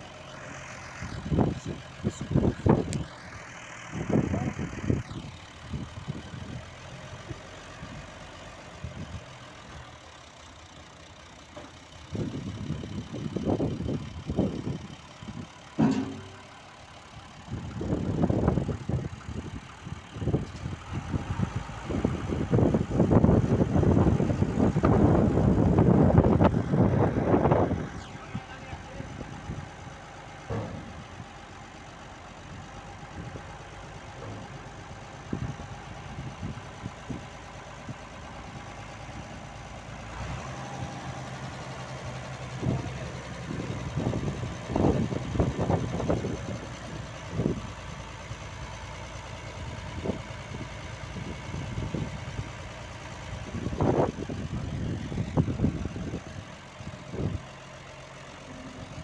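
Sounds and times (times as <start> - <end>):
tractor diesel engine idling: 0.0 - 59.0
thumps: 15.8 - 16.5.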